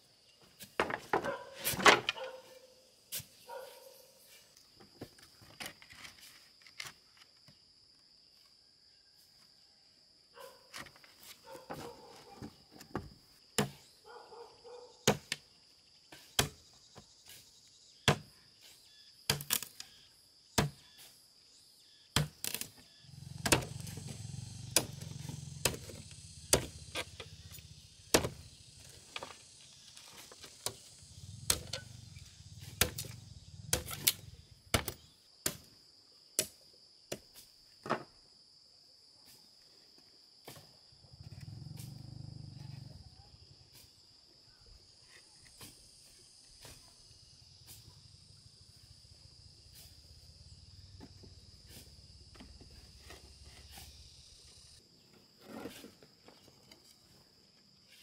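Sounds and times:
high insect drone: 0:00.0 - 0:58.0.

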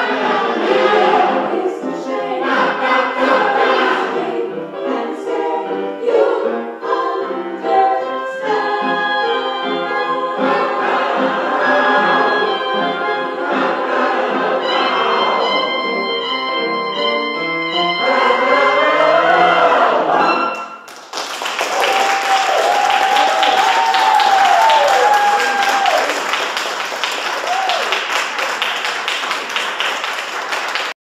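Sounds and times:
mixed choir singing: 0:00.0 - 0:20.8
audience applauding: 0:20.8 - 0:31.0
person whooping: 0:21.8 - 0:26.2, 0:27.4 - 0:28.0.

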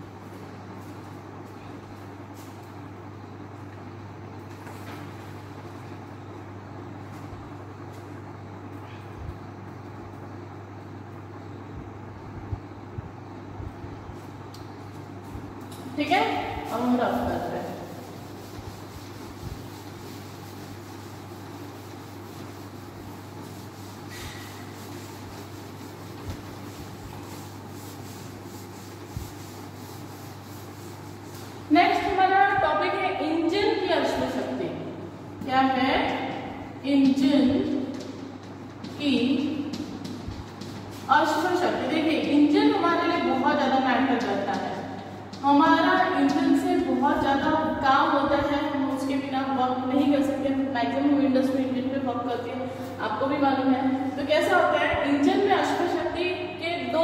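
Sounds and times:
steady low hum: 0:00.0 - 0:57.0
duster rubbing chalkboard: 0:16.0 - 0:32.6, 0:37.0 - 0:47.5.

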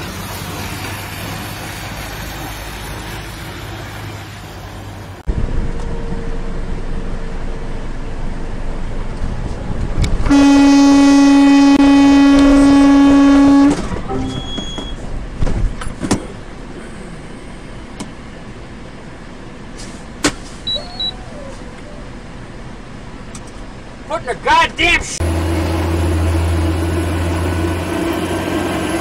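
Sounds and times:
engine and road noise: 0:00.0 - 0:29.0
car horn blast: 0:10.3 - 0:14.7
high beep: 0:14.1 - 0:15.0, 0:20.7 - 0:21.2.

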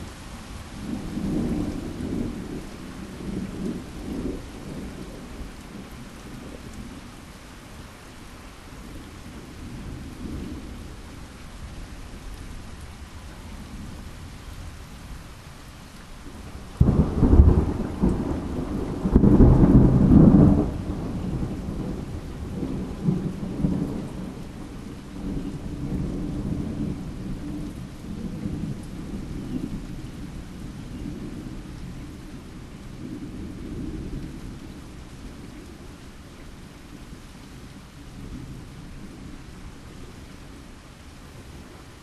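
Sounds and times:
steady falling rain: 0:00.0 - 0:42.0
thunder rumbling: 0:16.3 - 0:35.8.

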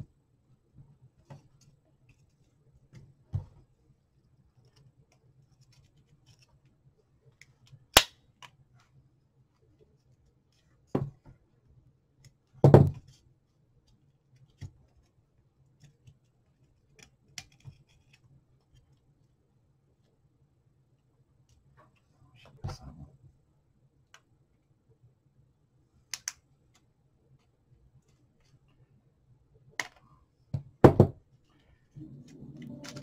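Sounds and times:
faint low hum: 0:31.5 - 0:33.0.

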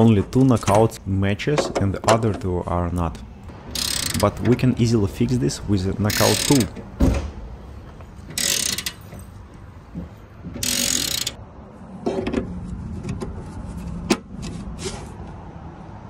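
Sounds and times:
wrench rasping clicks: 0:03.7 - 0:04.6, 0:06.1 - 0:06.8, 0:08.3 - 0:09.2, 0:10.6 - 0:11.4.

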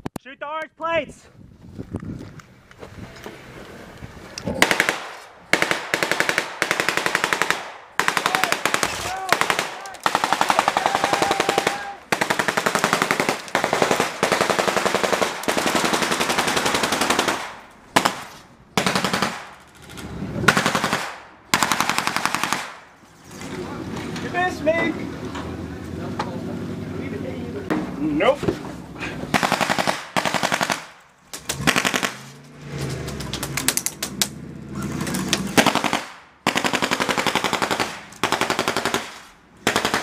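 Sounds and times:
machine-gun fire bursts: 0:04.6 - 0:19.5, 0:20.5 - 0:22.8, 0:29.3 - 0:31.0, 0:31.6 - 0:32.2, 0:35.6 - 0:40.0.

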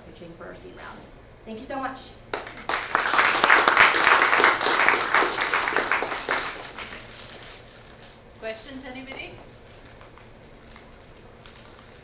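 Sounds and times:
audience applause: 0:02.3 - 0:07.1.

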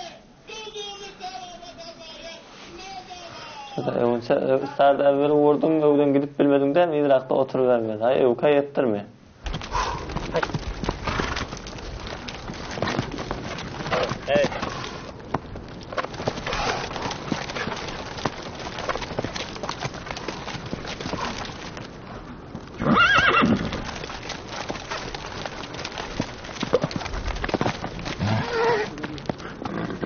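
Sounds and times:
horse hooves striking ground: 0:09.4 - 0:30.0
horse neighing: 0:22.8 - 0:23.9, 0:28.2 - 0:30.0.

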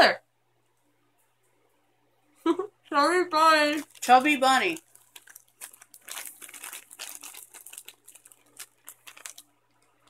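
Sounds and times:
crinkling packaging rustle: 0:03.6 - 0:10.0.

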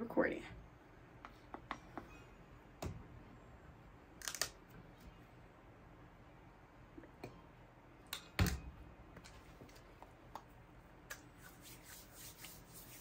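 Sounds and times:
hands rubbing lotion: 0:11.1 - 0:13.0.

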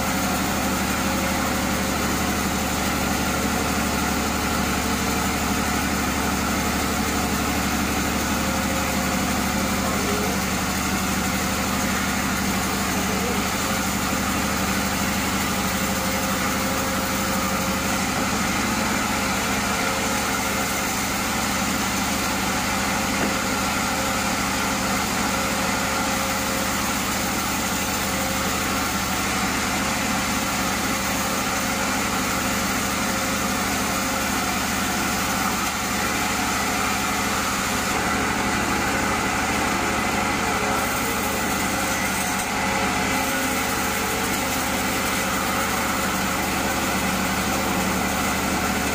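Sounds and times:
band sawmill sawing log: 0:00.0 - 0:48.9.

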